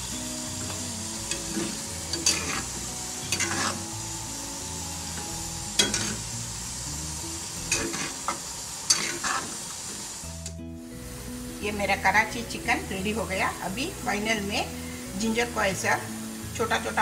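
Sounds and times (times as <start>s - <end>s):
gravy sizzling: 0.0s - 17.0s
spatula scraping a pan: 0.6s - 3.8s, 7.7s - 9.6s.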